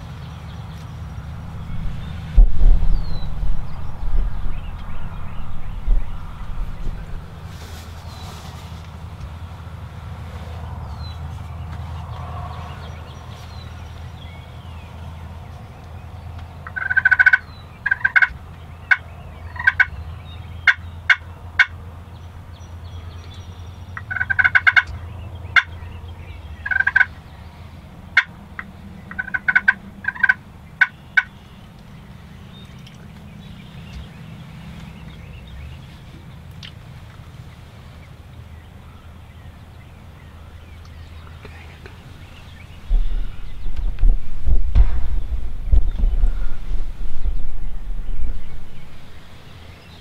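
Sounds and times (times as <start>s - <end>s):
turkey gobbling: 16.6s - 20.0s, 20.6s - 21.8s, 24.0s - 25.8s, 26.6s - 27.2s, 28.1s - 31.4s.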